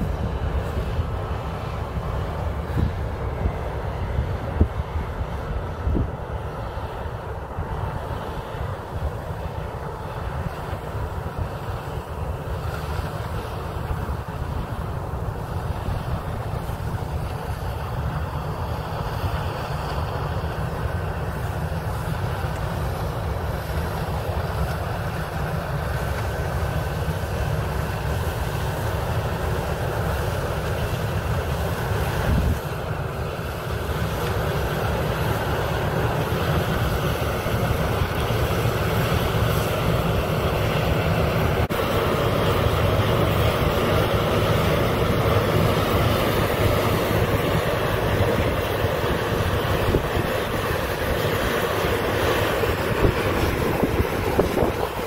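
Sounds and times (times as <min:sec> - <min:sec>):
combine harvester rumble: 0:00.0 - 0:55.0.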